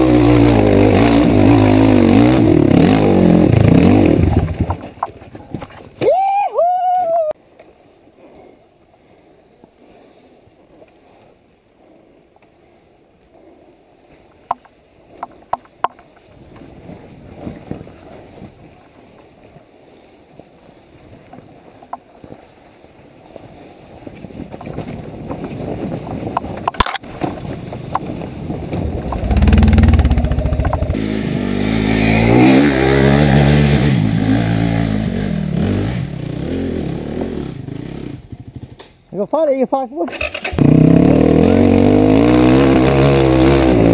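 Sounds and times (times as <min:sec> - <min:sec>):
motorcycle engine revving: 0:00.0 - 0:04.8, 0:28.7 - 0:38.8, 0:40.2 - 0:43.9.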